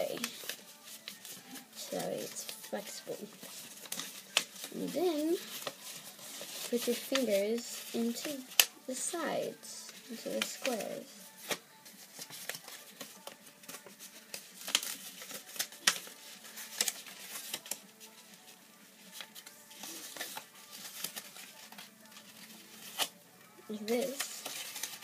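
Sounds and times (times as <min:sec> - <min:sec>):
folded paper clicking and crinkling: 0:00.0 - 0:08.7, 0:09.9 - 0:23.1, 0:23.7 - 0:25.0.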